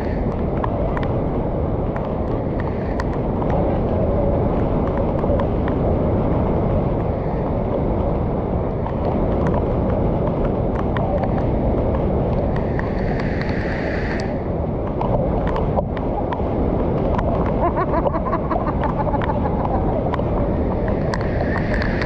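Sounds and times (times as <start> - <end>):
river water roaring over a weir: 8.2 - 22.0.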